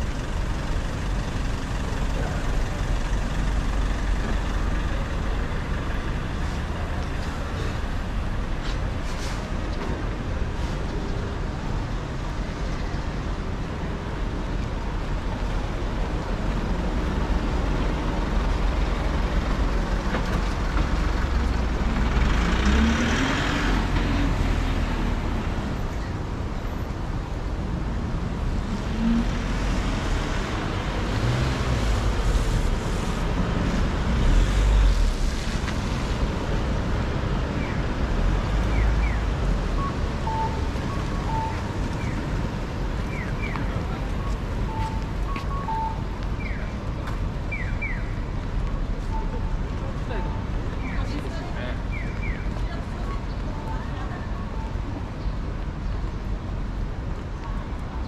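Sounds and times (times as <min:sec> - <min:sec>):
road traffic hum: 0:00.0 - 0:58.0
short high beeps: 0:39.8 - 0:41.7, 0:44.2 - 0:46.1.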